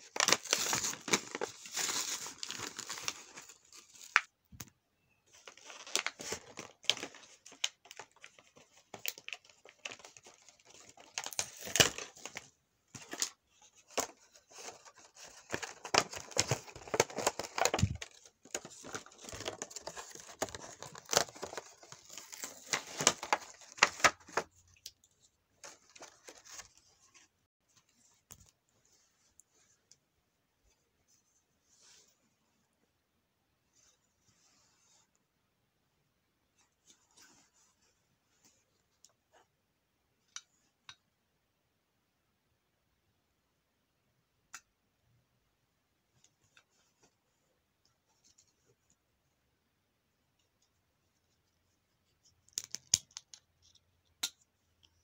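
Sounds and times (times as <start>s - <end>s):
plastic packaging crinkling and tearing: 0.0s - 4.3s, 5.4s - 12.4s, 14.5s - 24.4s.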